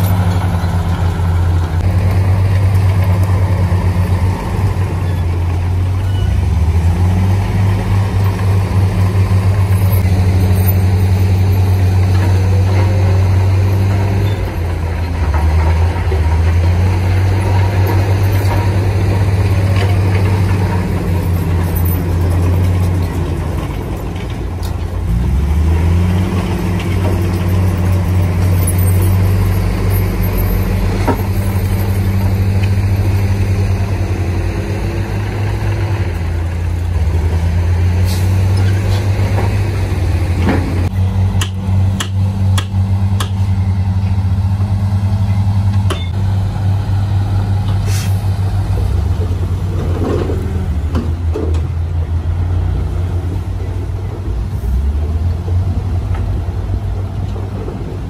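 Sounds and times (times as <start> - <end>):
diesel truck engine running: 0.0 - 58.0.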